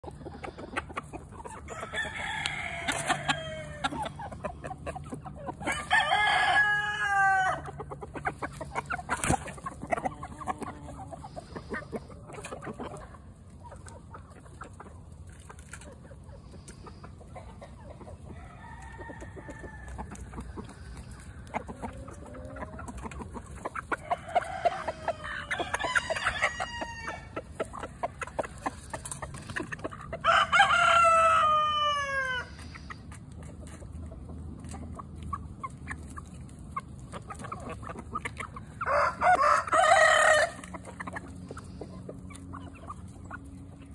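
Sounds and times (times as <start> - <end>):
chickens clucking: 0.0 - 43.9
chickens pecking metal pan: 0.0 - 43.9
rooster crowing: 1.7 - 4.0, 5.7 - 7.7, 24.0 - 27.4, 30.2 - 32.5, 38.8 - 40.7.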